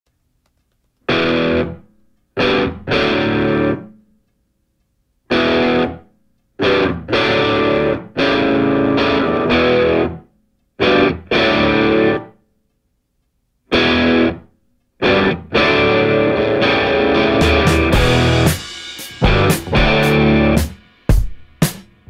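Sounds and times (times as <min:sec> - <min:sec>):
distorted electric guitar stabs: 0:01.1 - 0:01.8, 0:02.4 - 0:03.9, 0:05.3 - 0:06.0, 0:06.6 - 0:10.2, 0:10.8 - 0:12.3, 0:13.7 - 0:14.4, 0:15.0 - 0:21.3.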